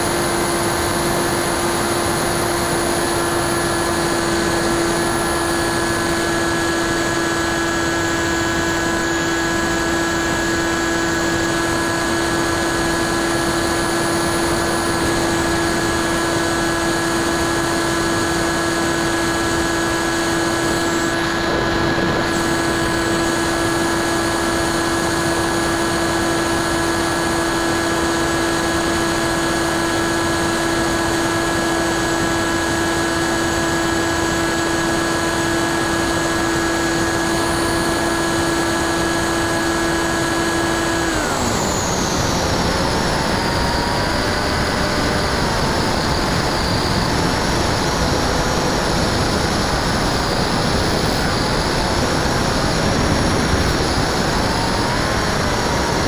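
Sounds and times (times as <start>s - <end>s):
electric motor whine: 0.0s - 56.0s.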